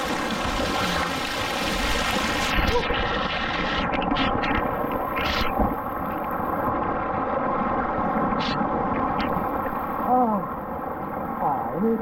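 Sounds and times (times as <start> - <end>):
pool water splashing: 0.0 - 3.7.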